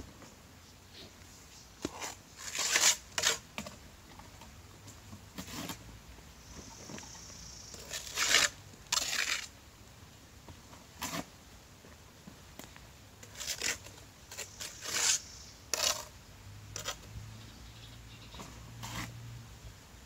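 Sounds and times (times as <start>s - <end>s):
trowel scraping mortar: 1.8s - 3.8s, 5.4s - 5.8s, 7.7s - 9.5s, 13.2s - 16.1s, 16.8s - 17.1s, 18.8s - 19.2s.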